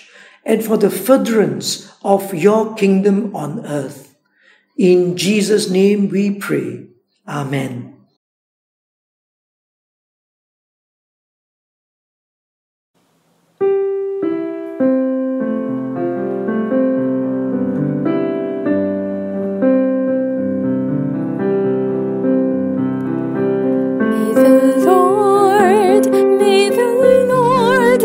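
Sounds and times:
slow piano chords: 13.5 - 28.0
person singing: 24.1 - 28.0.

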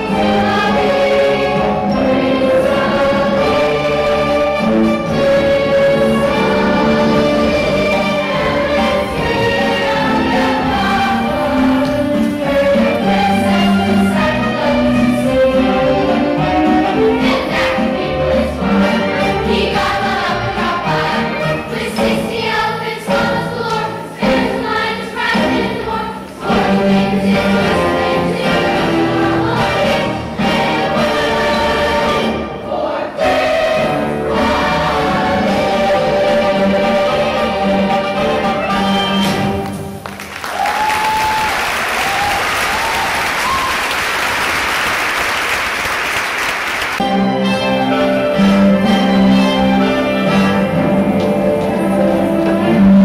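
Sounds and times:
chorus singing with orchestra: 0.0 - 40.0, 47.0 - 53.0
audience applause and cheering: 39.4 - 47.1.

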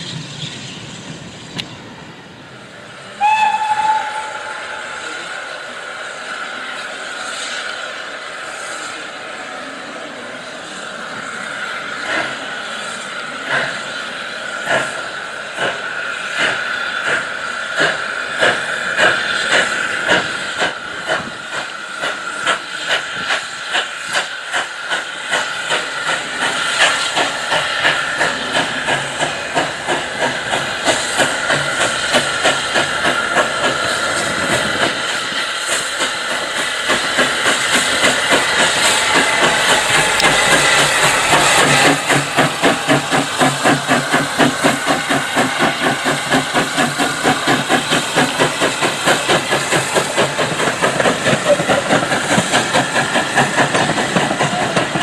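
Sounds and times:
steam hissing: 0.0 - 55.0
steam locomotive exhaust beats: 0.0 - 55.0.

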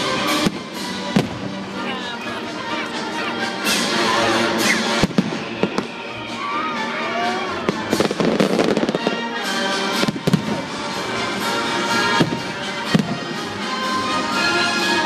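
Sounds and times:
fireworks bangs: 0.0 - 2.2, 4.5 - 6.1, 7.4 - 13.8
music playing: 0.0 - 15.0.

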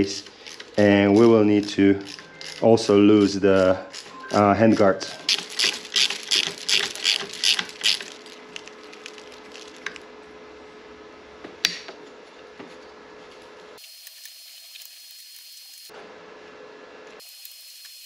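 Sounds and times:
hand ratchet clicking: 0.0 - 4.4, 5.3 - 8.2.

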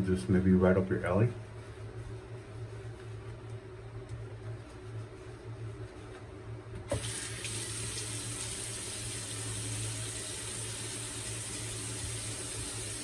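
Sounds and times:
tap water running into sink: 6.9 - 13.0.

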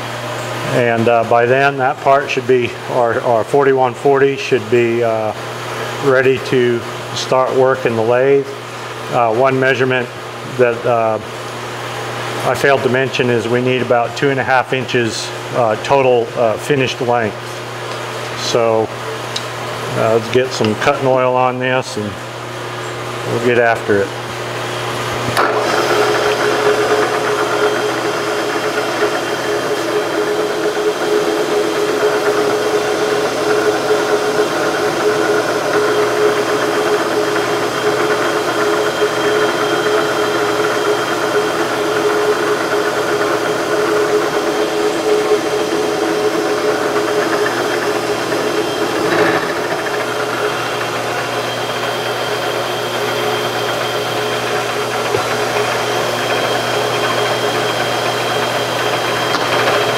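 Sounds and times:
spindle hum: 0.0 - 59.9
milling cutter cutting metal: 24.8 - 59.9.

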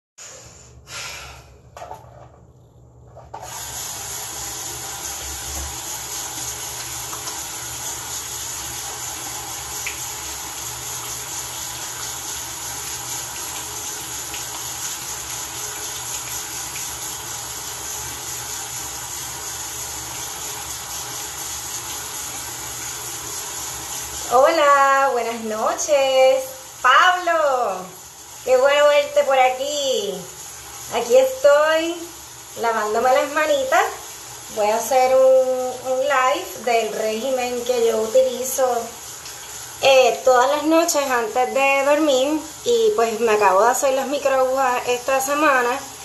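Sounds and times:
hands washing under water: 3.4 - 24.6
tap running into a sink: 5.0 - 23.1.

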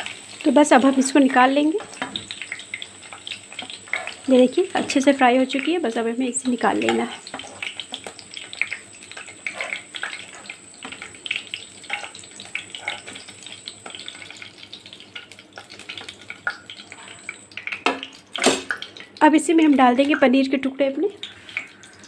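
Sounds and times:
hot oil sizzling and crackling: 0.0 - 22.0
steel ladle scraping pan: 9.4 - 10.5, 11.8 - 13.2.

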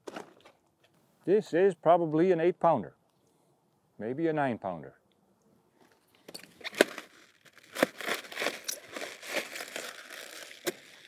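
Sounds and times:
knife cutting crunchy cabbage: 6.6 - 11.0.

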